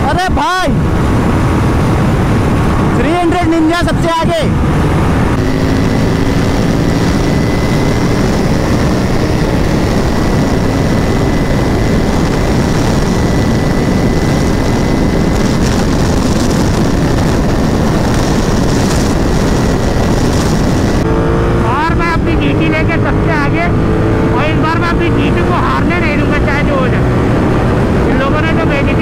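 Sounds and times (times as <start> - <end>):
motorcycle engine drone: 0.0 - 29.0
wind rush on microphone: 0.0 - 29.0
faint thin whine: 5.2 - 21.0.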